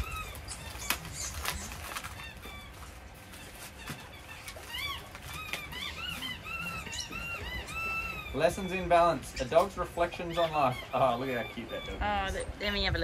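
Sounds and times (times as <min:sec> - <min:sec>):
paper packaging crackling: 0:00.0 - 0:06.5
birds chirping: 0:00.0 - 0:13.0.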